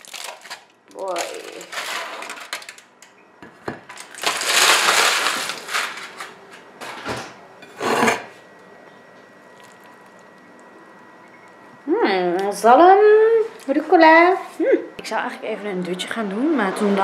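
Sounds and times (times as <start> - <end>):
aluminium foil crinkling: 0.0 - 3.0, 3.8 - 6.7.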